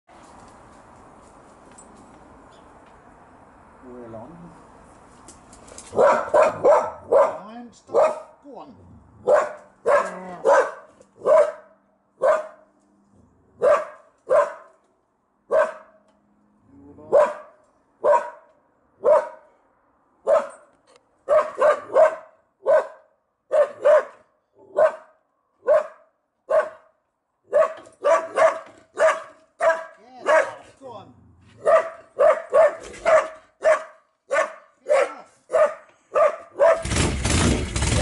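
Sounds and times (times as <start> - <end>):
dog barking: 5.9 - 8.4, 9.2 - 12.7, 13.6 - 14.7, 15.5 - 16.0, 17.1 - 19.5, 20.2 - 20.7, 21.3 - 26.9, 27.5 - 30.6, 31.6 - 36.9.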